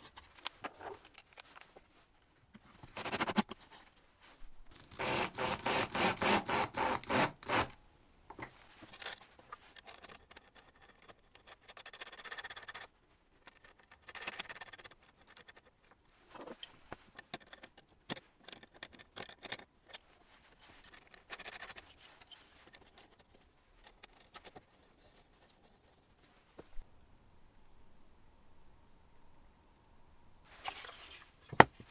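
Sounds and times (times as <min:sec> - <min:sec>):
metal parts clicking and scraping: 0:00.0 - 0:01.7, 0:08.7 - 0:26.0.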